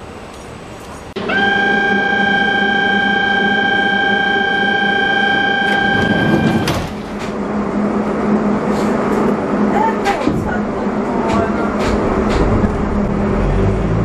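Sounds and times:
low train hum: 0.0s - 14.0s
door warning buzzer: 1.2s - 6.9s
train doors shutting knock: 4.0s - 7.4s, 9.9s - 13.3s.

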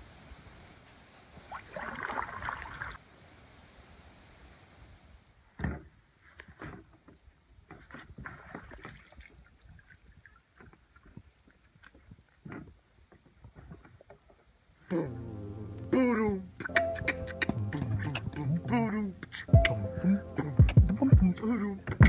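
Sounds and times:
paddle splashing water: 1.3s - 3.0s, 6.4s - 14.3s
insect chirping: 3.6s - 20.4s
thump against canoe hull: 5.6s - 7.1s
knocks and scrapes in canoe: 5.6s - 10.0s, 10.6s - 14.5s.

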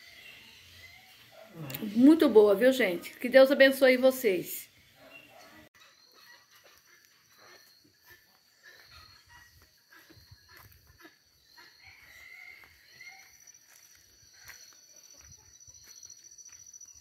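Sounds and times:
insects trilling: 5.8s - 17.0s
soft footsteps on dirt: 6.6s - 17.0s.

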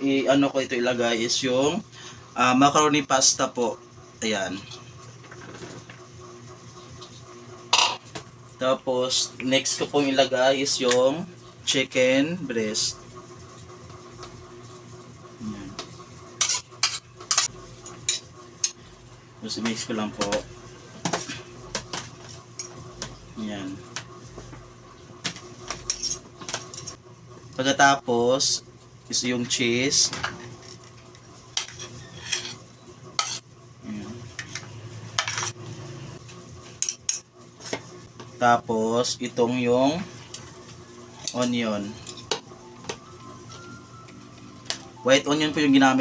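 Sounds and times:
metal spoon scraping a plate: 31.6s - 32.6s, 33.2s - 33.5s.

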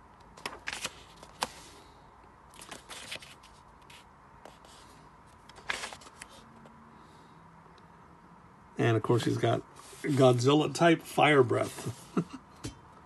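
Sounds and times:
paper pages rustling: 0.3s - 1.8s, 2.5s - 6.5s, 9.3s - 10.4s.

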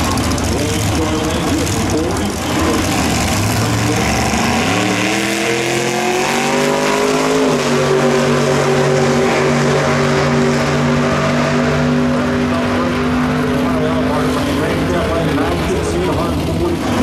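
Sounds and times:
race car engine accelerating: 0.0s - 17.0s.

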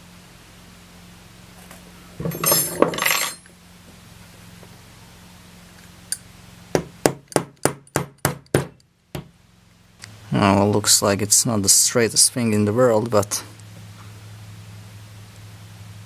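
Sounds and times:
metal clattering: 2.2s - 3.5s
hammer tapping metal tube: 6.8s - 9.3s.

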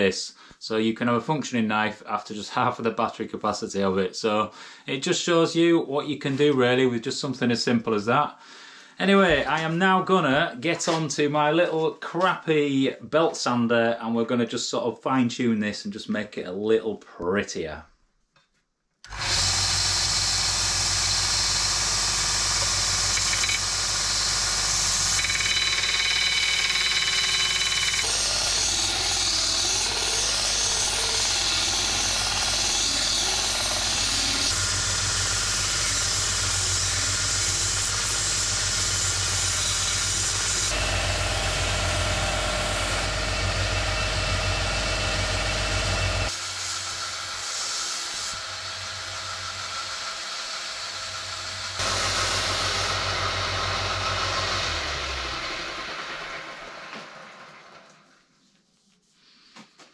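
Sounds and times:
belt sander motor hum: 19.1s - 47.2s, 51.2s - 57.8s
belt sander grinding metal: 19.1s - 50.4s, 51.4s - 57.4s.

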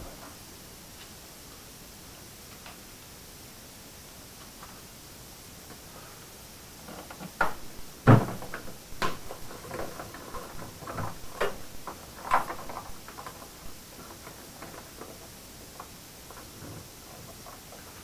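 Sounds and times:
clicks knocks and rattles: 6.9s - 15.2s
plastic can thumping on concrete: 7.4s - 9.9s.

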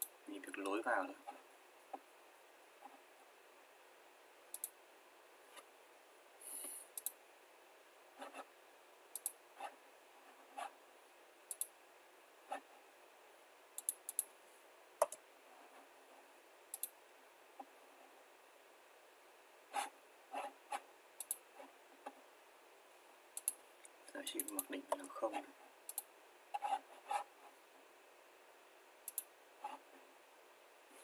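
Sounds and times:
computer mouse clicking: 4.5s - 4.8s, 6.9s - 7.2s, 9.1s - 9.4s, 11.5s - 11.7s, 13.8s - 14.3s, 15.0s - 15.2s, 16.7s - 17.0s, 20.7s - 21.5s, 23.4s - 25.1s, 25.9s - 27.3s, 29.0s - 29.8s.

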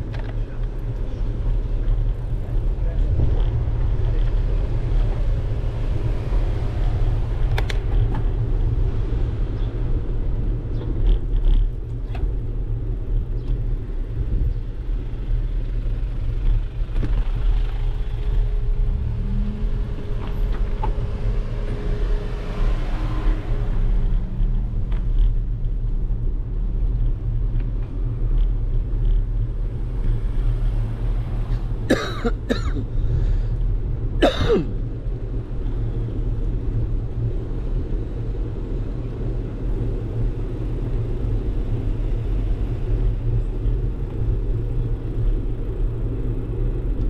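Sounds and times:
tyre road noise: 0.0s - 47.0s.

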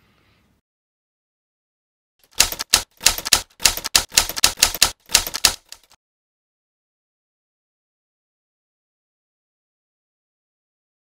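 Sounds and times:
typewriter key strikes: 2.3s - 6.0s.

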